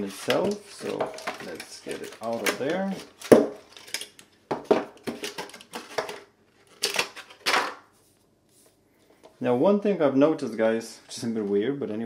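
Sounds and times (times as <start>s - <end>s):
cardboard and plastic rustling: 0.0s - 8.2s.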